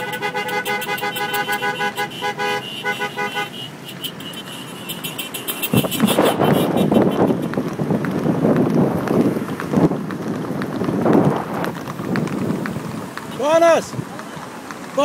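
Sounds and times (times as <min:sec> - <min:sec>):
wind buffeting microphone: 0:05.6 - 0:15.0.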